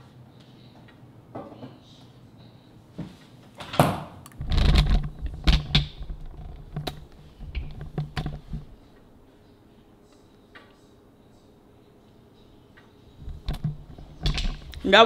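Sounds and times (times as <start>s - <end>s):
sharp knocks and clicks: 4.4s - 8.7s, 13.2s - 14.8s.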